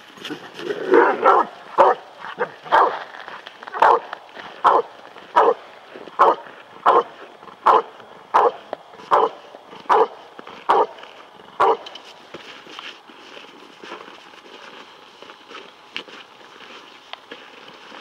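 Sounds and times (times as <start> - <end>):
dog barking sharply: 1.2 - 3.0, 3.8 - 5.6, 6.2 - 10.9.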